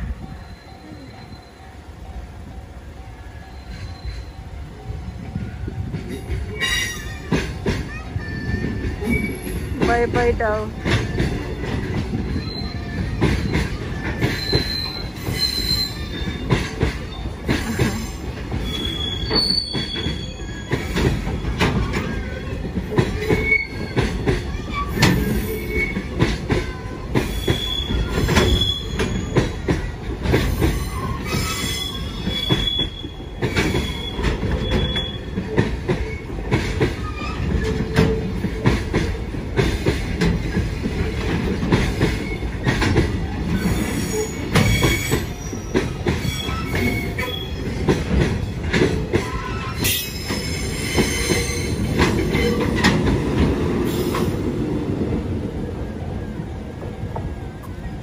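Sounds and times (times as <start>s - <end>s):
train wheels rumbling on rails: 0.0s - 58.0s
high wheel squeals: 0.2s - 1.8s, 3.2s - 9.7s, 10.9s - 17.4s, 18.0s - 22.4s, 23.1s - 26.2s, 27.1s - 29.9s, 30.5s - 36.4s, 42.0s - 42.8s, 43.5s - 48.0s, 48.9s - 52.8s
clicks and knocks of passing wagons: 5.9s - 54.4s.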